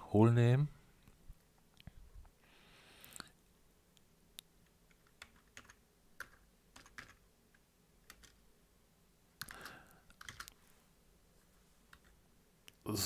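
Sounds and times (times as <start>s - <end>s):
keystrokes on computer keyboard: 4.9s - 8.4s, 9.4s - 10.6s, 11.9s - 12.2s.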